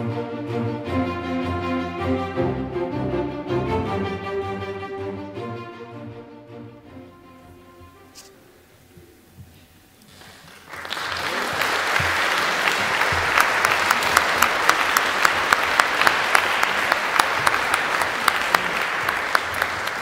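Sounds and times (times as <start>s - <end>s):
audience applause: 10.1s - 20.0s.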